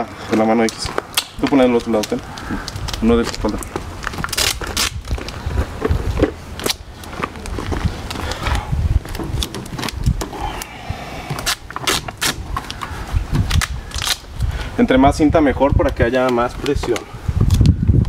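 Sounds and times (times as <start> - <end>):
adhesive tape tearing: 0.6 - 14.4.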